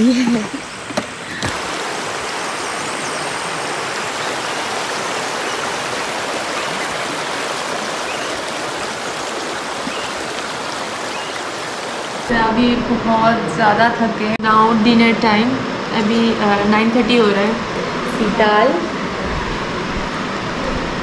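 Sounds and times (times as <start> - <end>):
river flowing over stones: 1.4 - 12.3.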